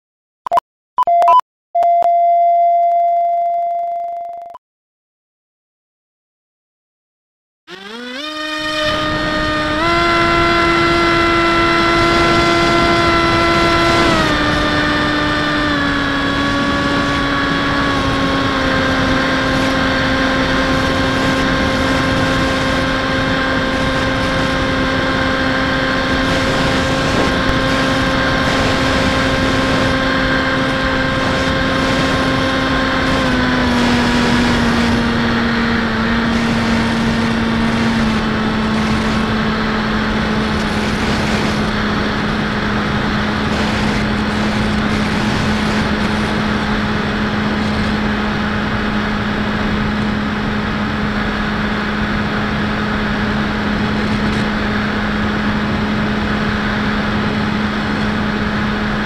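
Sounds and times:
electric motor and propeller whine: 7.7 - 59.0
wind rushing: 9.1 - 59.0.

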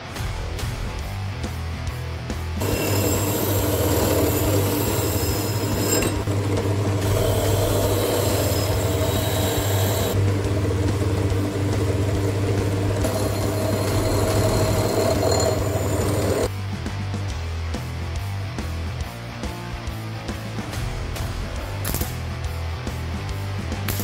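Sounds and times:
harsh scraping of rust: 2.6 - 10.7, 11.4 - 16.5
drill press motor hum: 2.6 - 16.5.

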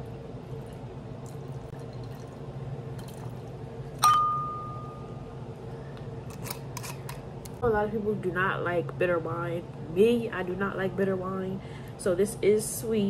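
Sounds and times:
steady low hum: 0.0 - 13.0
glass clink ringing: 4.0 - 5.2.

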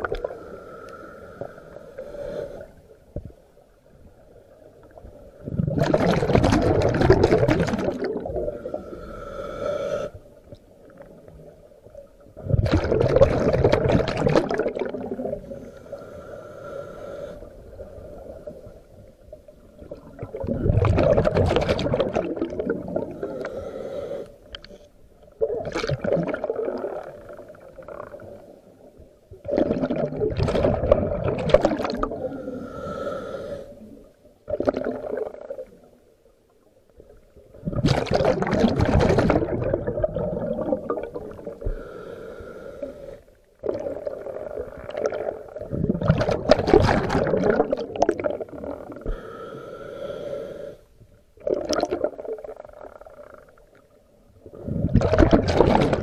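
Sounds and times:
faint regulator hiss: 0.1 - 5.4, 8.4 - 12.2, 15.4 - 19.8, 23.1 - 25.4, 32.2 - 34.4, 41.1 - 43.6, 48.8 - 51.3
diver exhaling bubbles: 5.4 - 8.9, 12.4 - 15.6, 19.8 - 23.8, 25.4 - 28.4, 29.4 - 33.0, 34.5 - 35.7, 37.5 - 42.0, 43.6 - 49.3, 51.4 - 53.6, 54.5 - 56.0.

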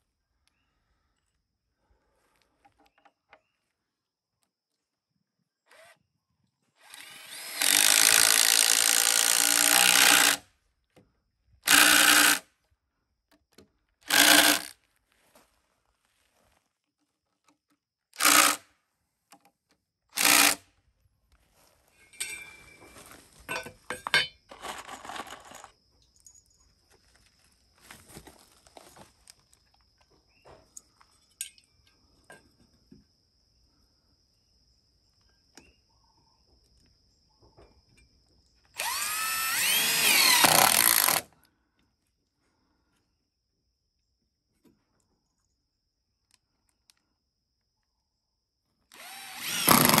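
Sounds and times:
power drill running: 5.7 - 6.0, 6.8 - 10.4, 11.6 - 12.4, 14.0 - 14.7, 18.2 - 18.6, 20.2 - 20.6, 38.8 - 41.3, 48.9 - 50.0.

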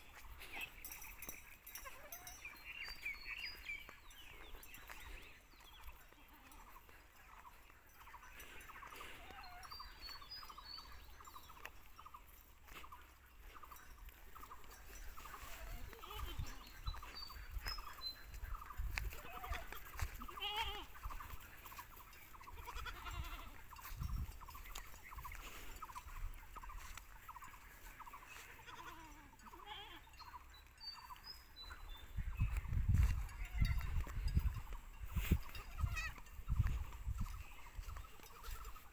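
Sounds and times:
goats bleating: 15.4 - 16.7, 19.1 - 21.0, 22.4 - 23.8, 28.3 - 30.2, 38.1 - 38.8.

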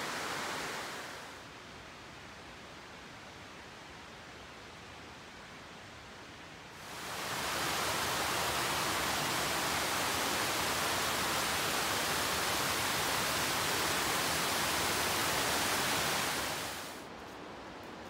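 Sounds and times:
creek water rushing over rocks: 6.8 - 17.0.

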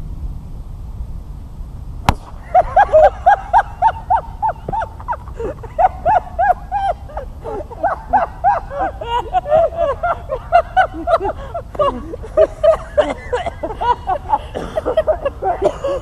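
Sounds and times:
golf ball bursting crack: 2.0 - 3.0
loud laughter: 2.4 - 16.0.

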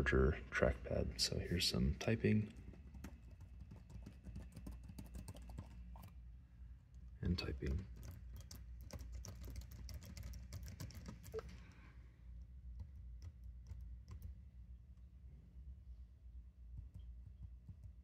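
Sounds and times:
laptop keyboard typing: 2.5 - 6.2, 7.3 - 11.7, 12.7 - 14.4, 16.8 - 18.0.

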